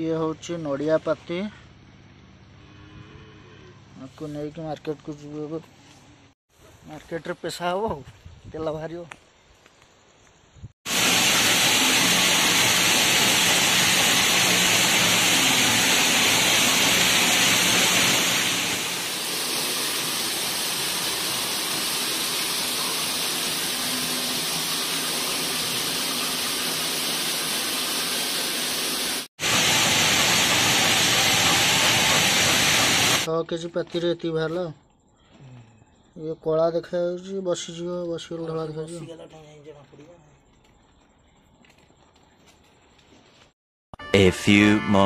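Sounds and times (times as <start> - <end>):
oil mill machinery running: 10.9 - 33.3.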